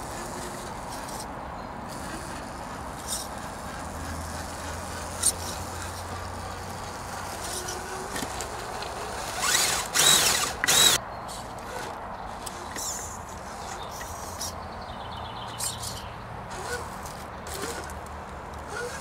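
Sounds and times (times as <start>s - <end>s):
electric motor whining: 1.9s - 11.0s, 18.6s - 19.0s.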